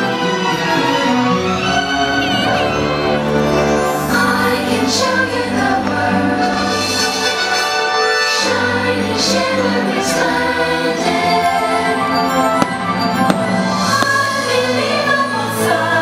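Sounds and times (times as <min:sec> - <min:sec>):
orchestral music with choir: 0:00.0 - 0:16.0
firework bangs: 0:12.4 - 0:14.9.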